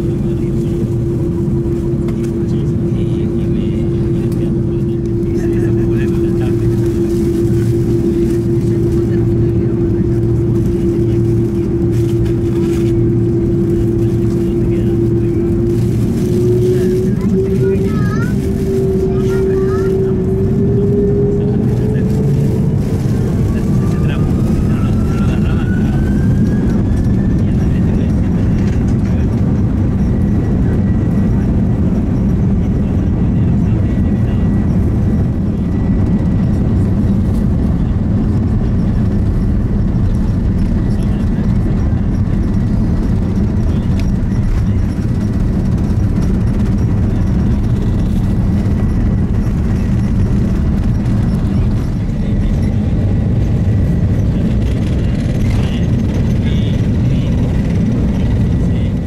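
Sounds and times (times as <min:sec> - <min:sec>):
aircraft cabin rumble: 0:00.0 - 0:59.0.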